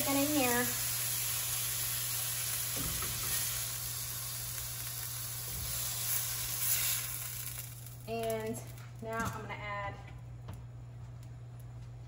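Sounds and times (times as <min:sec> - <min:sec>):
skillet sizzling: 0:00.0 - 0:09.1.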